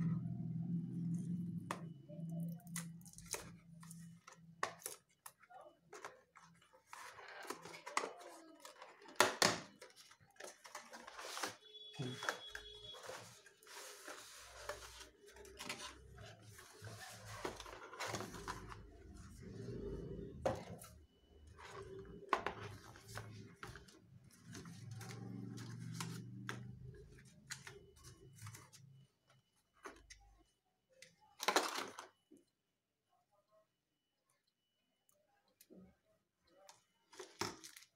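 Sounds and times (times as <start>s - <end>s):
cardboard and plastic rustling: 2.4s - 29.0s, 37.0s - 37.9s.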